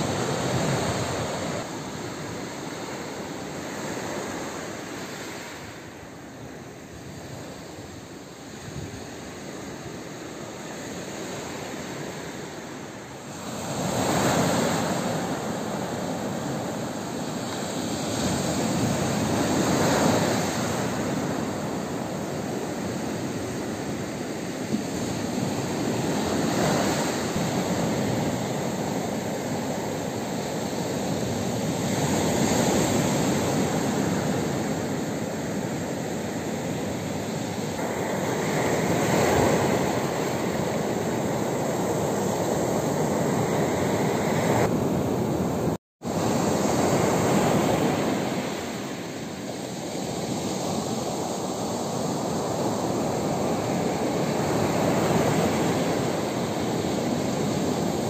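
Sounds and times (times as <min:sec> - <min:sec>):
waves washing on pebble beach: 0:13.2 - 0:58.0.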